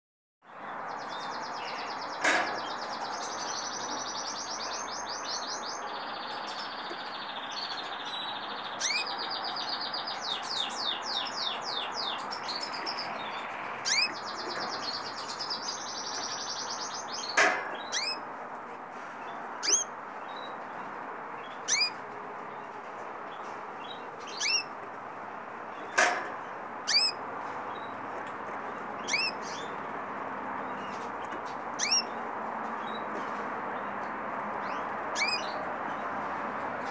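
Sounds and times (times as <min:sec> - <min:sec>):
canaries trilling song: 0:00.5 - 0:36.9
short rising chirp calls: 0:03.6 - 0:18.2, 0:19.6 - 0:19.9, 0:21.5 - 0:22.0, 0:24.2 - 0:24.8, 0:26.9 - 0:27.2, 0:29.0 - 0:29.8, 0:31.8 - 0:32.2, 0:35.1 - 0:35.6.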